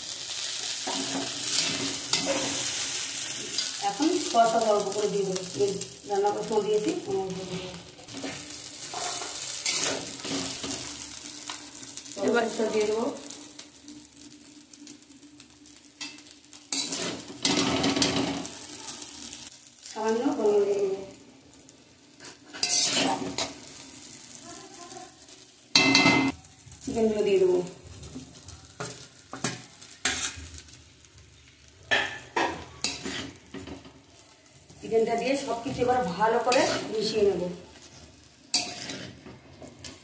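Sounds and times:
noodles sizzling in a wok: 0:00.0 - 0:40.0
metal spatula scraping and clanking: 0:00.8 - 0:03.8, 0:07.4 - 0:11.0, 0:16.0 - 0:18.5, 0:22.2 - 0:23.7, 0:28.8 - 0:30.7, 0:31.9 - 0:33.9, 0:35.7 - 0:37.2, 0:37.8 - 0:40.0.

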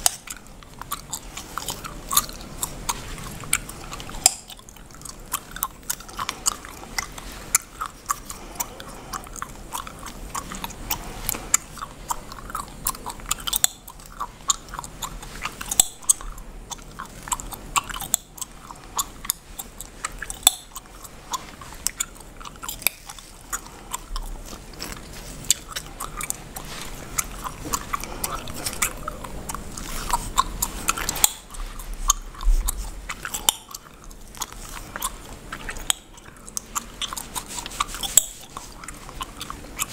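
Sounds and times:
bubblegum chewing and snapping: 0:00.0 - 0:39.9
comb scratching through hair: 0:19.4 - 0:39.9.

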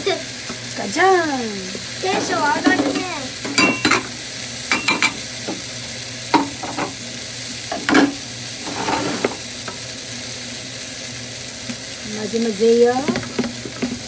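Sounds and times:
food sizzling in frying pan: 0:00.0 - 0:14.0
spatula knocking and scraping pan: 0:02.1 - 0:04.1, 0:06.4 - 0:07.0, 0:07.7 - 0:09.4.

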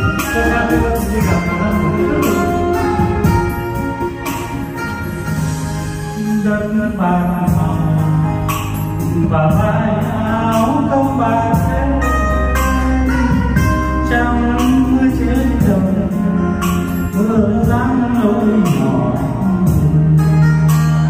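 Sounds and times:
backing music with steady beat: 0:00.0 - 0:21.0
man singing into a microphone: 0:00.0 - 0:21.0.

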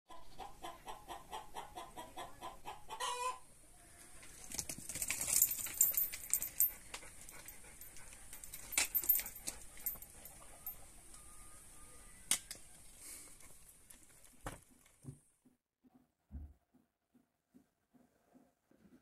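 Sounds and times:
chicken clucking: 0:00.1 - 0:04.2
clicks and rustling: 0:04.2 - 0:10.8.

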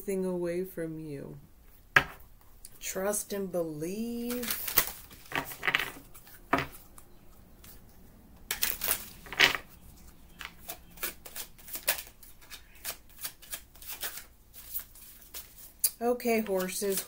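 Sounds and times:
cards being shuffled: 0:04.2 - 0:07.8, 0:08.5 - 0:17.0.

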